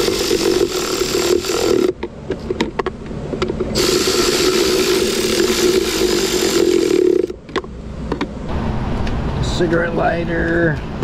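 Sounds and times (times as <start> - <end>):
cordless power tool motor running: 0.0 - 2.0, 3.8 - 7.4.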